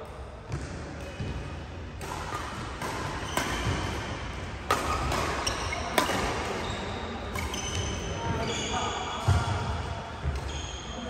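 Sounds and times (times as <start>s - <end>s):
rackets hitting shuttlecock: 0.0s - 8.5s, 9.2s - 10.6s
shoes squeaking on court: 4.8s - 9.6s, 10.2s - 11.0s.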